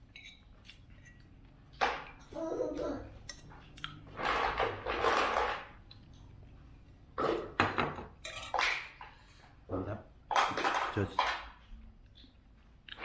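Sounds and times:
metal spoon clinking ceramic bowl: 0.1 - 1.2.

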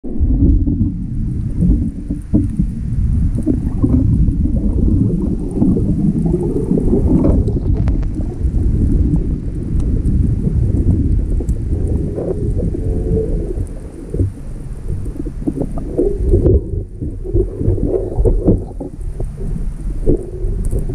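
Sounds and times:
muffled underwater water rushing: 0.0 - 20.9
faint clicks: 9.5 - 20.9.

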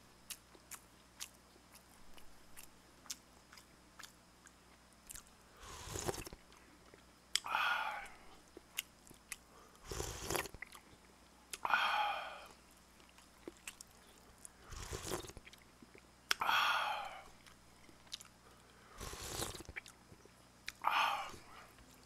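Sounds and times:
person chewing: 0.3 - 22.0
slurping and breathing: 5.6 - 6.4, 9.6 - 10.6, 14.1 - 15.4, 18.4 - 19.8.

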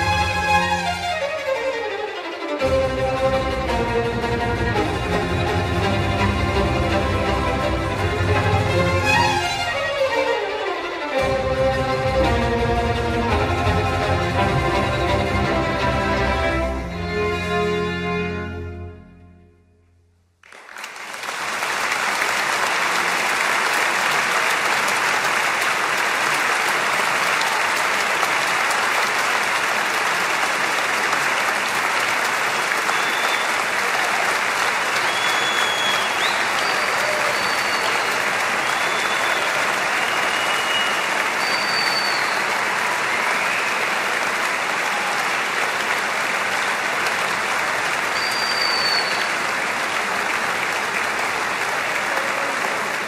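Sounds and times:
orchestral music: 0.0 - 20.0
audience applauding: 2.6 - 10.5, 20.4 - 53.0.

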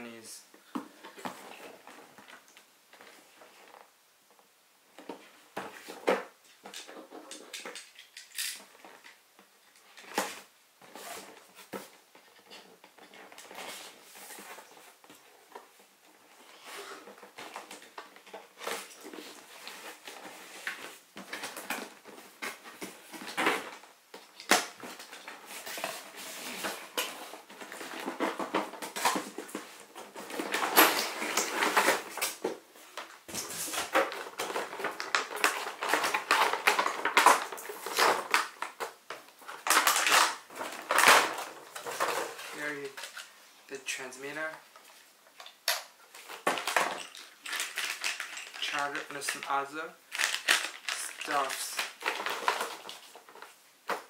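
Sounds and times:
cardboard and plastic tray rustling: 16.9 - 43.3.

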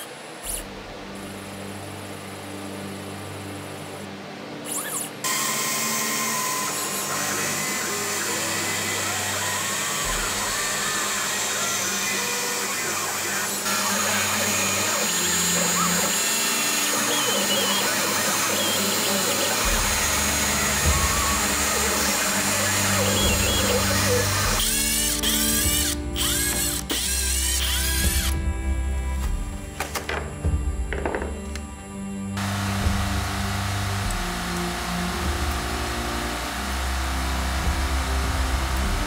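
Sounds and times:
router spindle hiss and whine: 0.0 - 39.0.

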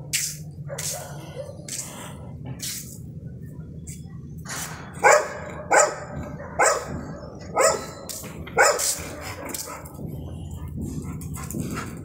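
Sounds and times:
dog barking: 0.6 - 1.7, 5.0 - 8.0, 8.6 - 9.7.

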